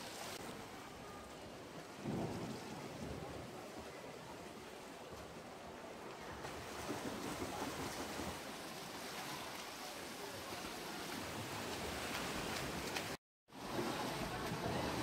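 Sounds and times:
swimmers splashing in pool: 6.4s - 15.0s.

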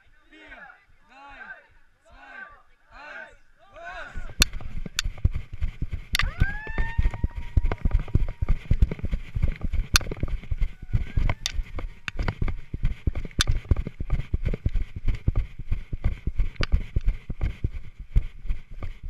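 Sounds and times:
running footsteps on grass: 3.9s - 19.0s
sharp clicks: 4.2s - 17.8s.

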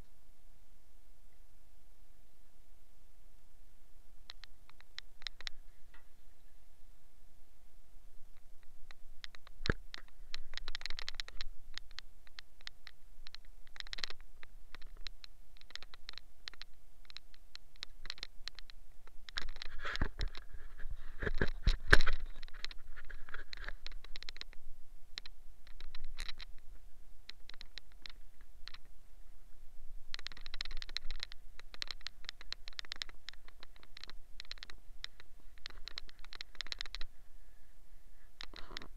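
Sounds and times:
sharp knocks and handling noise: 9.2s - 24.6s.

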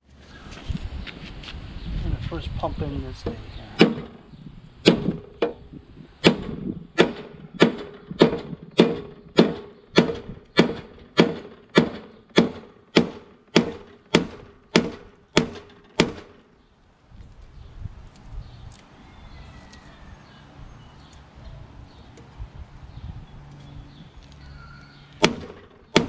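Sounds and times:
sledgehammer striking steel: 3.8s - 4.2s, 4.8s - 5.6s, 6.2s - 16.4s, 25.2s - 26.0s.

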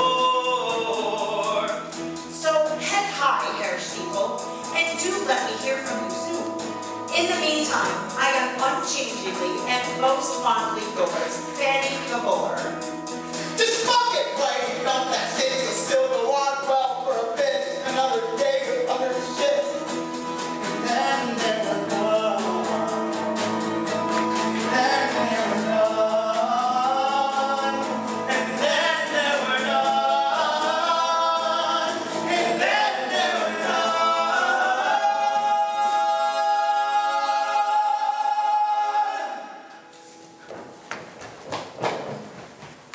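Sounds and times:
male ensemble singing: 0.0s - 1.9s, 13.6s - 20.0s, 20.6s - 23.5s, 24.3s - 39.8s
band playing rock music: 0.0s - 37.8s.

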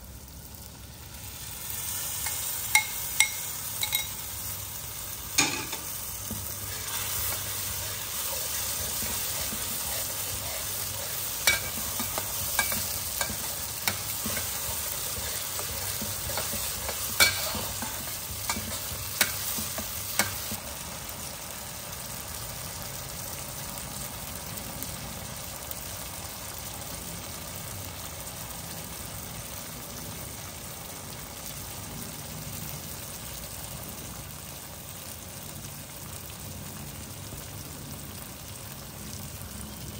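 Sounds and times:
curry paste sizzling in wok: 0.0s - 39.9s
metal spatula scraping wok: 5.3s - 20.6s.

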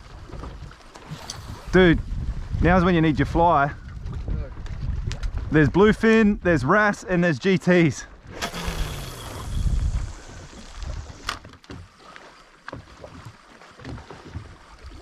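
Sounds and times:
wind buffeting microphone: 0.0s - 6.8s, 8.0s - 11.5s
water sloshing: 8.1s - 15.0s.

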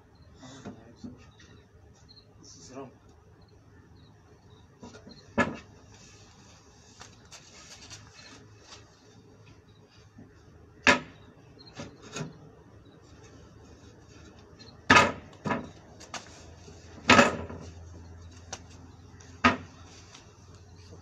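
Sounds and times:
wooden table banging: 5.4s - 5.7s, 19.4s - 19.7s.

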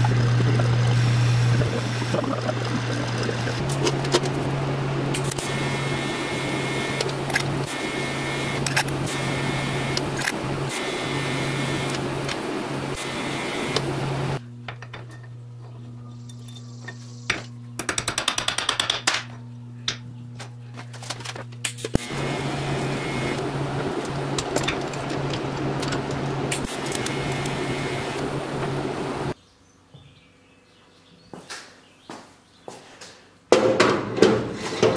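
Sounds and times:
welding arc hissing: 0.0s - 14.4s, 21.6s - 29.4s
welding machine hum: 0.0s - 29.4s.

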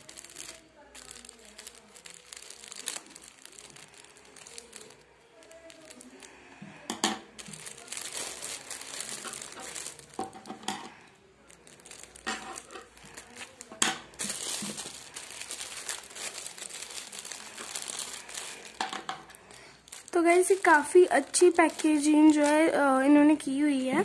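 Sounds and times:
scissors cutting plastic: 0.0s - 11.0s
plastic wrapping crinkling: 0.0s - 24.0s.

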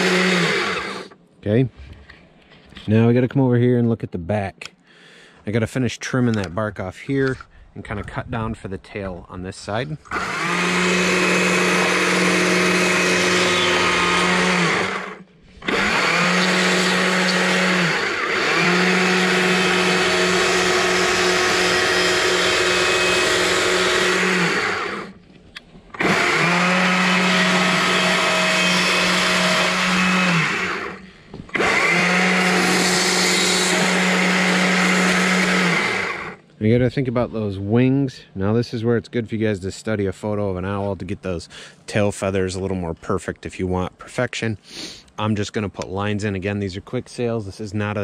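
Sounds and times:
chainsaw cutting wood: 0.0s - 1.2s, 10.1s - 25.2s, 25.9s - 36.4s.

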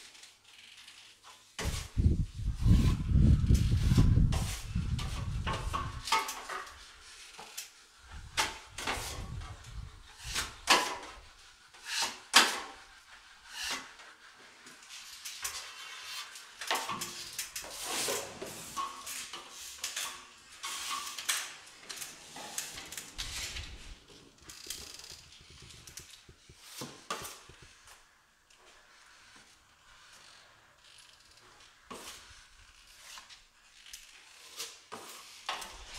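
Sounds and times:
trowel scraping and clacking: 10.2s - 14.1s, 14.7s - 23.8s, 24.6s - 27.7s.

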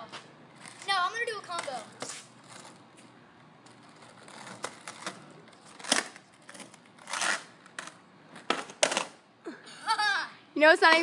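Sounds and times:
skateboard wheels rolling on concrete: 0.0s - 9.3s
skateboard clacking on ground: 7.7s - 9.2s.

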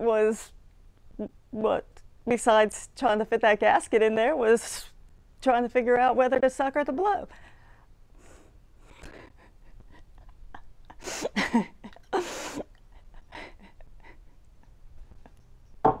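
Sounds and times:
woman laughing in breathy bursts: 8.3s - 15.4s.

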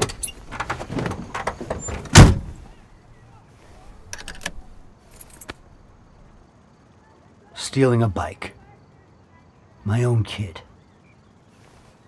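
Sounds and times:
car door shutting: 0.7s - 2.6s.

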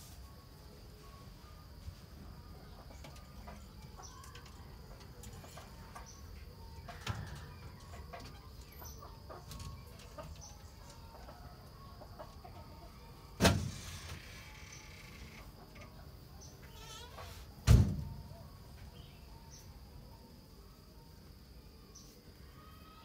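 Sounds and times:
chickens clucking: 1.7s - 13.4s, 14.0s - 17.5s
sharp thump: 17.6s - 18.2s.

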